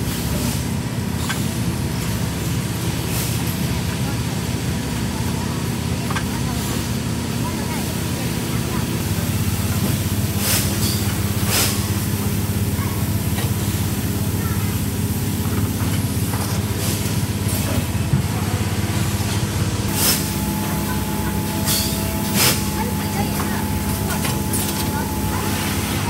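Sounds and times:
machinery humming: 0:00.0 - 0:26.0.

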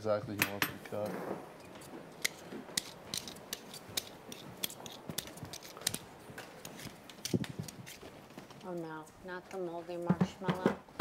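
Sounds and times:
kitchen utensils clicking and scraping: 0:00.4 - 0:08.1.

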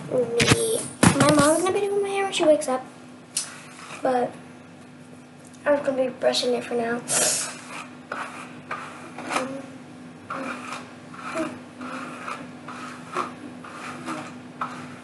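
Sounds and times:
hairbrush rubbing through hair: 0:07.1 - 0:09.6, 0:10.3 - 0:15.0.

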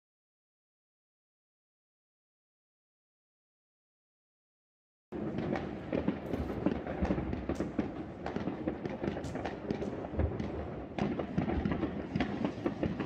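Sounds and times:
fireworks crackling: 0:05.2 - 0:13.0.

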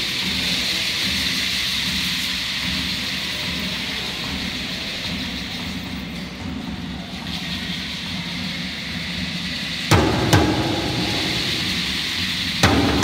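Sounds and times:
crowded room hum: 0:00.0 - 0:13.0
hand drum strikes: 0:09.9 - 0:13.0.

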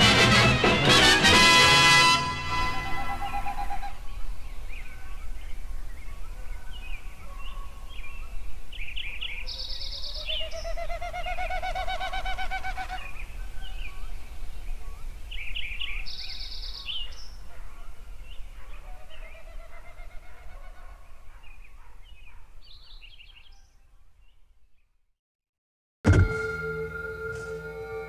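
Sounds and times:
long rising trilled bird call: 0:02.2 - 0:04.2, 0:09.6 - 0:13.4, 0:26.3 - 0:28.0
birds chirping and calling: 0:02.6 - 0:23.8.

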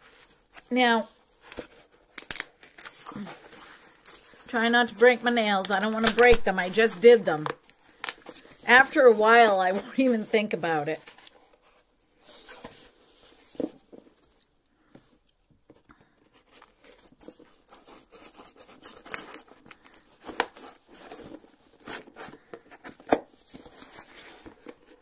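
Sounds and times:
cardboard box tearing and scraping: 0:16.5 - 0:24.9.

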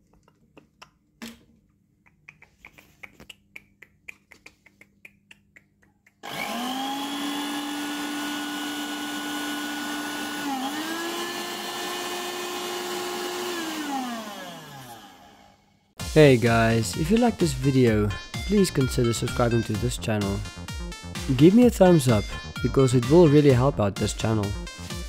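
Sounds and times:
blender motor whining: 0:06.2 - 0:15.7.

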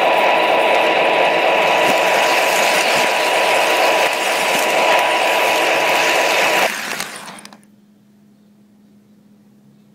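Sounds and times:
model train rattling and whining: 0:00.0 - 0:07.7.

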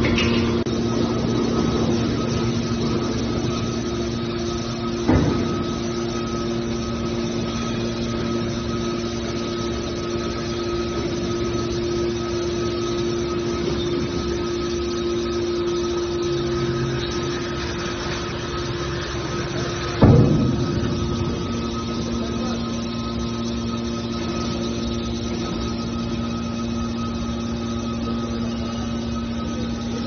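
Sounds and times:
hydraulic pump humming: 0:00.0 - 0:30.0
short clunk: 0:20.0 - 0:21.8.

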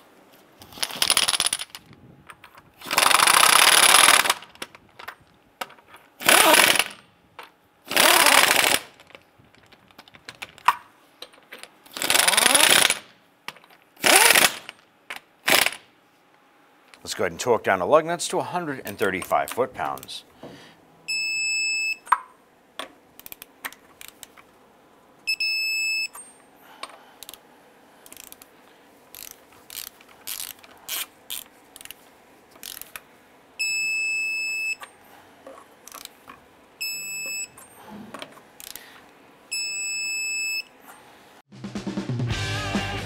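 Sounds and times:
torque wrench ratcheting clicks: 0:02.8 - 0:04.4, 0:06.2 - 0:07.0, 0:07.9 - 0:08.9, 0:11.9 - 0:13.0, 0:28.0 - 0:28.5, 0:29.1 - 0:32.0, 0:32.6 - 0:33.0.

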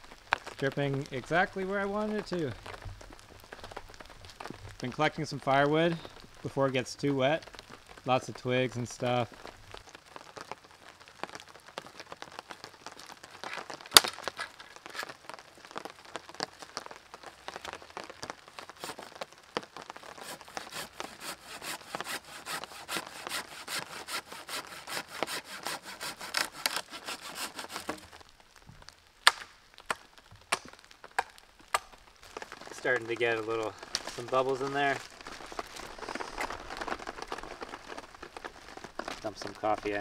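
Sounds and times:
dead wood snapping: 0:13.9 - 0:14.6, 0:20.4 - 0:28.2, 0:28.8 - 0:40.0
rasping strokes on wood: 0:20.2 - 0:28.0.

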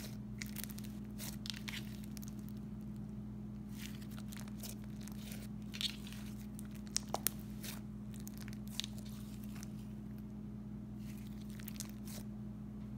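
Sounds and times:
slime squishing: 0:00.0 - 0:12.3
steady low hum: 0:00.0 - 0:12.9.

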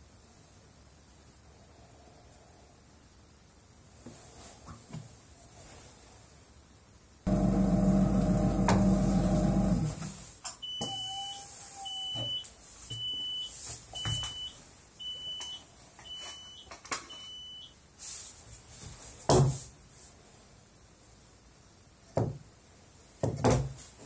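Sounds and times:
electric vibrator humming: 0:07.3 - 0:10.1.

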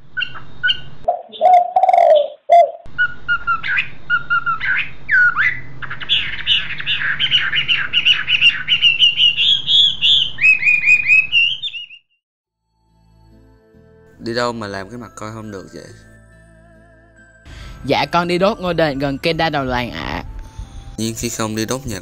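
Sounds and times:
birds chirping and singing: 0:00.2 - 0:12.1.

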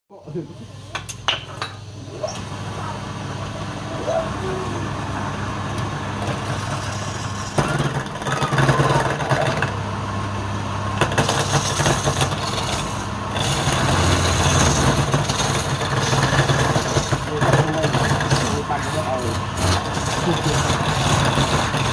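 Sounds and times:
lathe motor humming: 0:01.9 - 0:21.9
chisel scraping spinning wood: 0:05.8 - 0:09.8, 0:11.0 - 0:21.9.

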